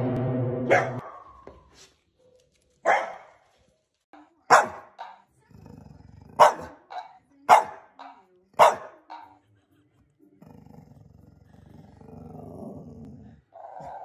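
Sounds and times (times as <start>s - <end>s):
dog barking: 0.7s - 1.4s, 2.2s - 3.4s, 4.5s - 5.3s, 6.3s - 9.4s
dog growling: 5.4s - 6.4s, 10.4s - 14.0s.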